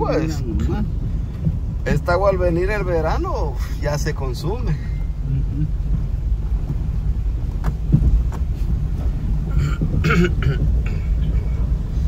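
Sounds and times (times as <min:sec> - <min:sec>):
car knocking over bumps: 0:00.0 - 0:12.0
engine and road rumble: 0:00.0 - 0:12.0.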